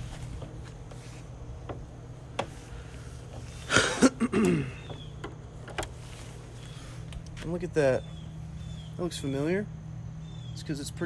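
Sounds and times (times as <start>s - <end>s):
handling noise: 0.0s - 8.2s
steady low background hum: 0.0s - 11.0s
engine lid clicks: 4.3s - 6.0s.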